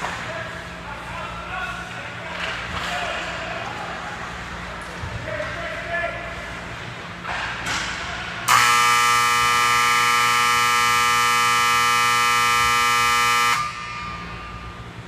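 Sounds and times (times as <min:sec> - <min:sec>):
electric buzzer tone: 0:08.5 - 0:15.0.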